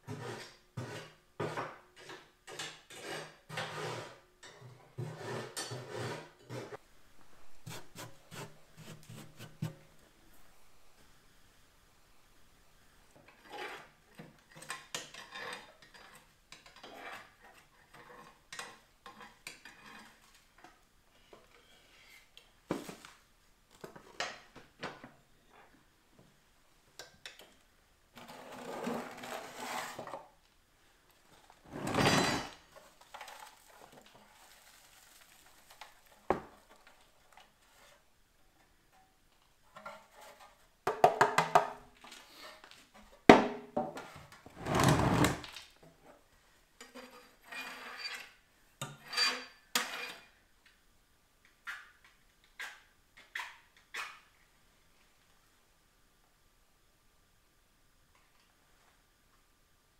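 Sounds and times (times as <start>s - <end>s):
rough metal scraping: 2.6s - 6.8s.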